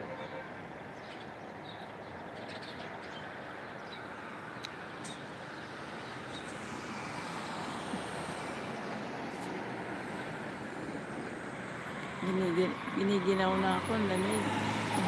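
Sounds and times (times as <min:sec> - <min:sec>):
cars driving through junction: 0:00.0 - 0:15.0
car passing close by: 0:05.6 - 0:15.0.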